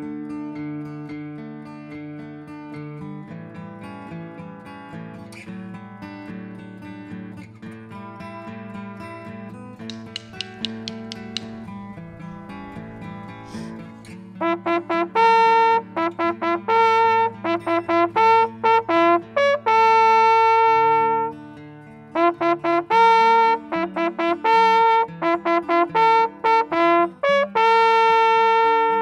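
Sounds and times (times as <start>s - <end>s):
brass hunting horn call: 12.7s - 21.4s, 22.2s - 29.0s.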